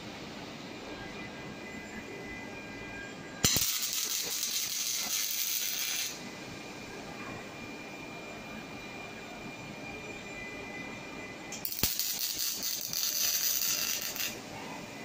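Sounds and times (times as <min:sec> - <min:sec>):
welding arc crackling hiss: 0:03.4 - 0:06.2, 0:11.6 - 0:14.5.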